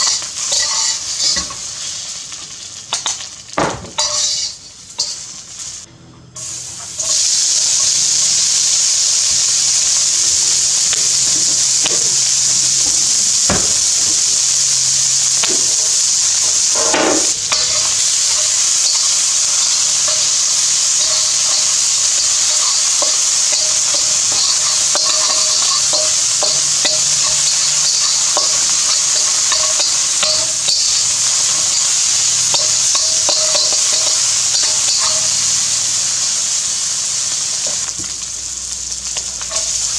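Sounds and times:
metal spatula scraping a wok: 0:00.0 - 0:01.6, 0:04.0 - 0:05.3
bacon sizzling in a wok: 0:00.0 - 0:39.9.

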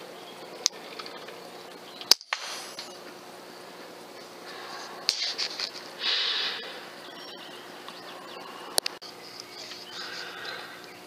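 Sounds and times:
air rifle shot: 0:02.1 - 0:03.0, 0:05.1 - 0:06.6
faint clicks: 0:08.7 - 0:10.2.

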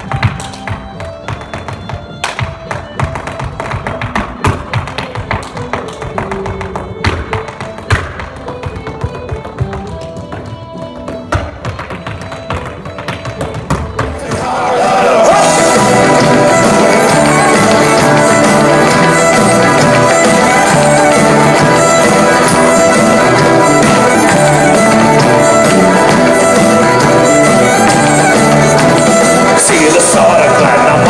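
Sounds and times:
drum kit: 0:13.3 - 0:31.0.

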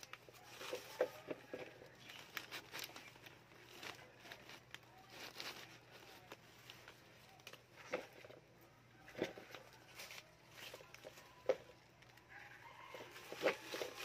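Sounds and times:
plastic wrapping crinkling: 0:00.0 - 0:14.0.

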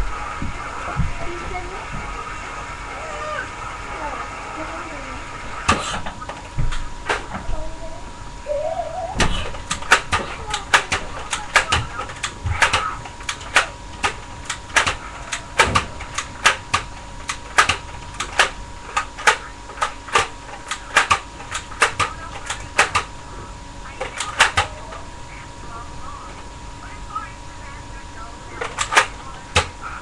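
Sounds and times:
faint steady hum: 0:00.0 - 0:30.0
toy gun clicking: 0:09.7 - 0:23.1, 0:24.1 - 0:24.8.

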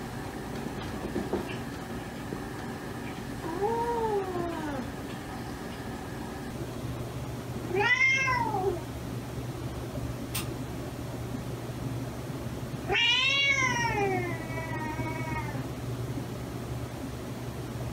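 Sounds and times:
cat meowing: 0:07.7 - 0:08.8, 0:12.9 - 0:15.6.

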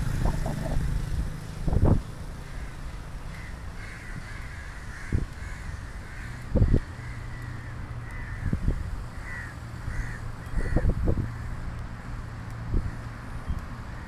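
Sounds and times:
short high squawks: 0:00.0 - 0:00.9
motorcycle engine rumbling: 0:00.0 - 0:03.0
road and wind noise: 0:00.0 - 0:14.0.

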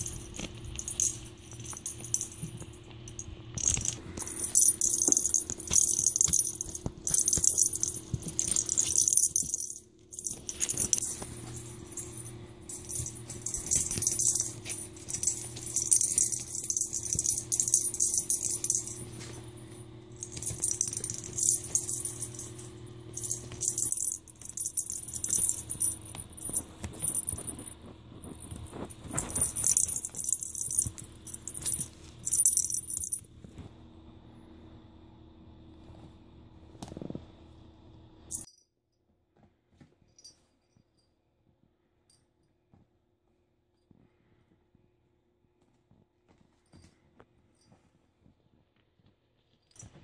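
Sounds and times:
small bell in toy ball jingling: 0:00.0 - 0:33.2, 0:38.3 - 0:38.6.

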